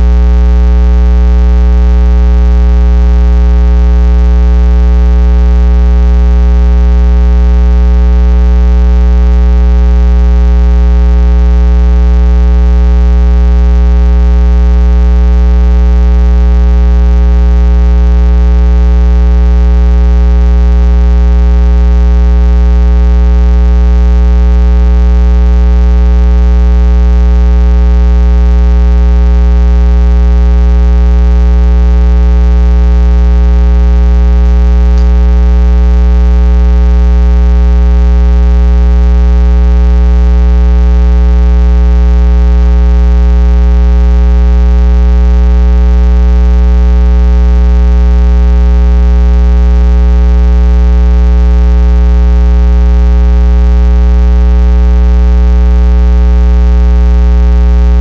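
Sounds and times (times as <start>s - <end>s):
loud electrical hum: 34.8s - 35.7s.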